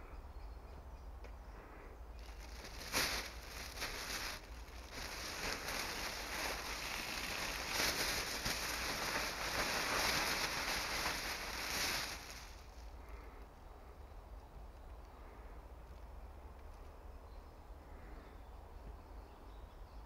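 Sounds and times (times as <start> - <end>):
foil sheet crinkling: 2.2 - 12.7.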